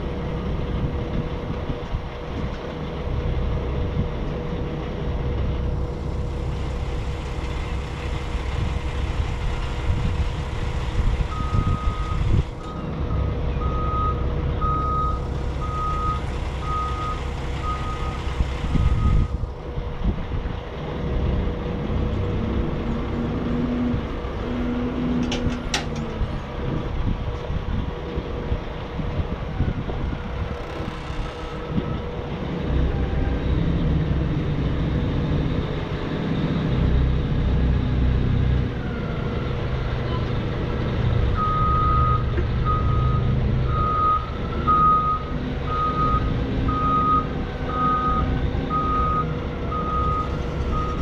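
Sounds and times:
diesel engine idling: 0.0s - 51.0s.

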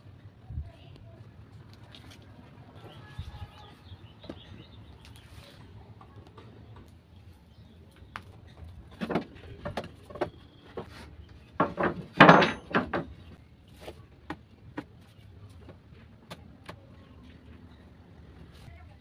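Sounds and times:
wooden planks knocking: 11.6s - 13.4s.

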